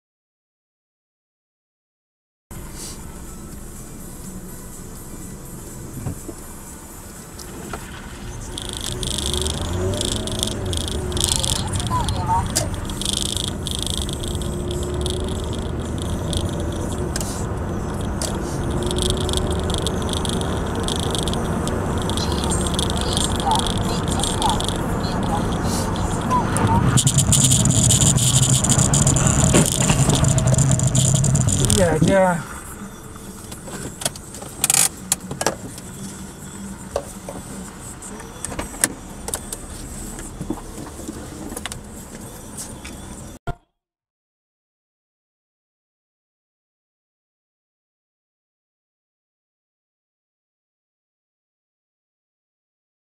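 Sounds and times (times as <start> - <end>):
engine and tyre rumble: 2.5 - 43.4
high buzz: 8.3 - 33.8
sharp clicks and knocks: 18.0 - 32.0.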